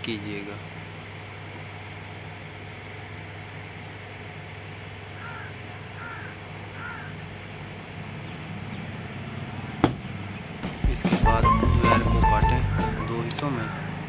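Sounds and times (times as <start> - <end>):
bird calling: 5.1 - 7.3, 12.4 - 14.0.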